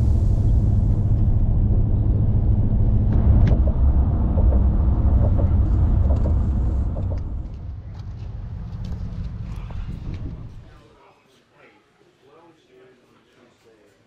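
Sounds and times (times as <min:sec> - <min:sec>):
vehicle driving at highway speed: 0:00.0 - 0:10.7.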